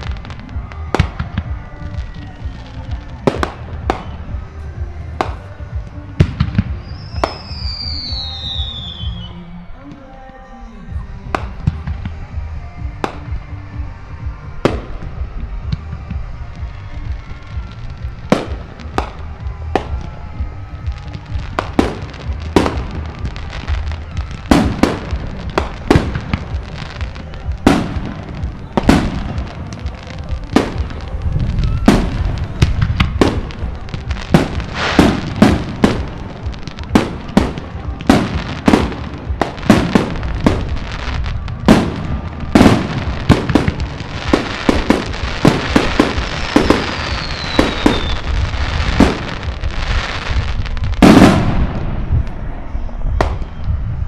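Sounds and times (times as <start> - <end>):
fireworks bursting with sharp bangs: 0.0 - 54.0
low rumble: 10.7 - 47.1, 47.8 - 54.0.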